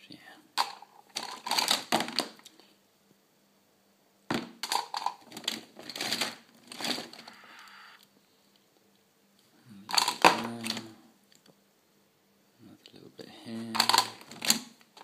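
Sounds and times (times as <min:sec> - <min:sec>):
plastic toys clattering in tub: 0:00.6 - 0:02.4, 0:04.3 - 0:07.2, 0:09.9 - 0:10.9, 0:13.7 - 0:15.0.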